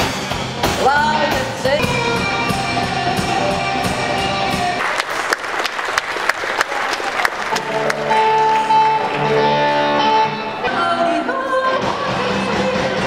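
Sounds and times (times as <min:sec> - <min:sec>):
music with repeated strokes and held notes: 0:00.0 - 0:04.8.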